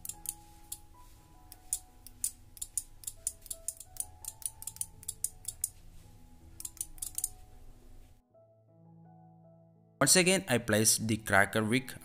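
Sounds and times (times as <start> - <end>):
soft background music: 0.0 - 12.0
relay clicking: 1.5 - 5.8, 6.6 - 7.4.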